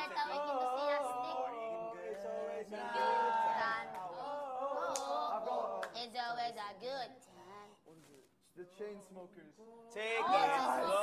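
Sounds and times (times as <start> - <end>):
voices singing: 0.0 - 6.1.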